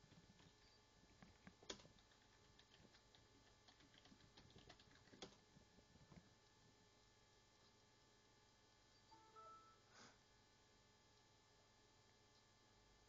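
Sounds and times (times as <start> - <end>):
computer mouse clicking: 0.0 - 5.4.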